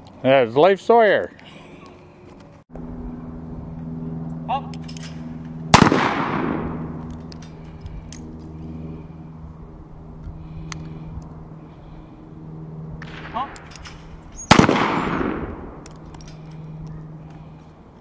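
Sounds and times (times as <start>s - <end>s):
steady low hum: 0.0s - 18.0s
pistol shot echoing: 5.7s - 7.0s, 14.4s - 15.8s.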